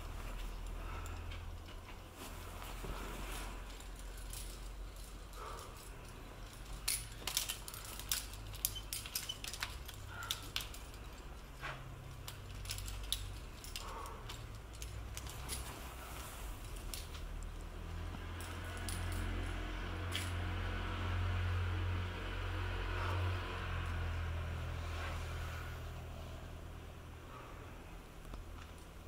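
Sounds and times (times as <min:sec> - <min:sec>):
carabiners clinking: 0:03.1 - 0:20.5.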